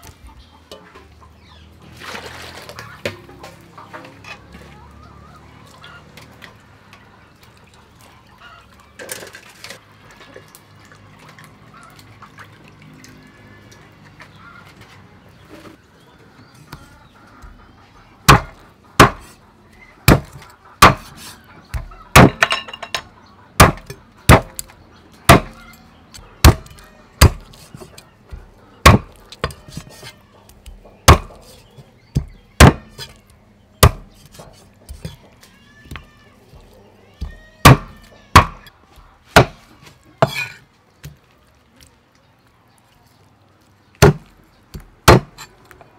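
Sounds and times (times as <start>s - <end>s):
cleaver chopping on wooden block: 18.3s - 19.3s, 20.1s - 22.5s, 23.6s - 24.7s, 25.3s - 25.6s, 26.4s - 30.1s, 30.7s - 33.1s, 33.8s - 35.2s, 37.2s - 38.7s, 39.4s - 39.6s, 40.2s - 40.5s, 44.0s - 45.5s.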